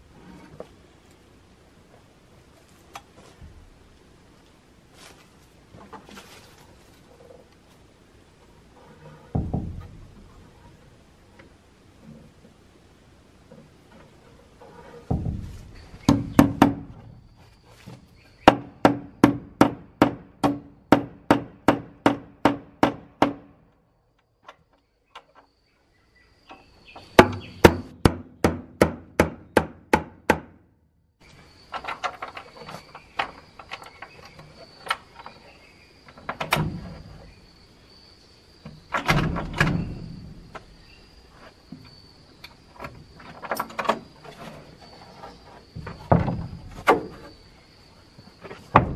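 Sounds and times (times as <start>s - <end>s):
heavy wooden thumps: 9.2s - 10.8s, 15.0s - 23.6s, 26.9s - 30.6s, 45.6s - 47.6s, 48.2s - 48.9s
hammer driving nails into wood: 18.5s - 23.5s.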